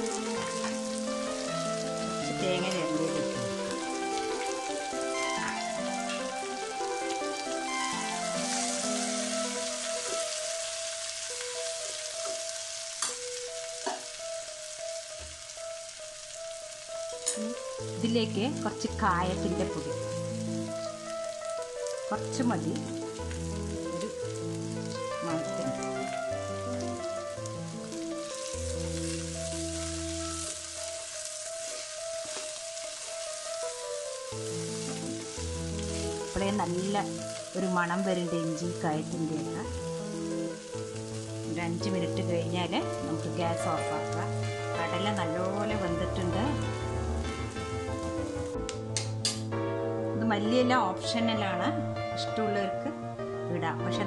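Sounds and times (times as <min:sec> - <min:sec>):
food sizzling in hot oil: 0:00.0 - 0:54.0
soft background music: 0:00.0 - 0:54.0
stirring in a pan: 0:03.0 - 0:13.1, 0:22.8 - 0:37.6.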